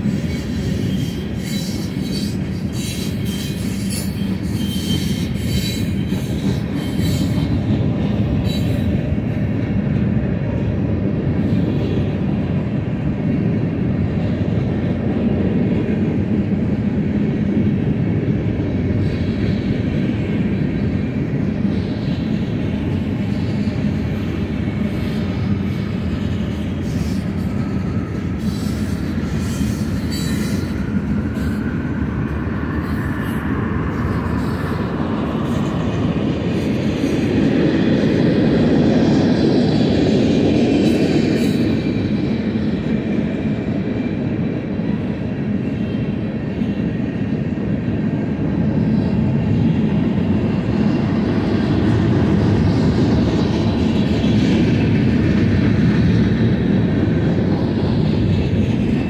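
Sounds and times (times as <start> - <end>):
train wheels rumbling on rail: 0.0 - 59.0
high-pitched wheel squeal: 0.1 - 7.7, 8.4 - 8.9, 28.4 - 31.6.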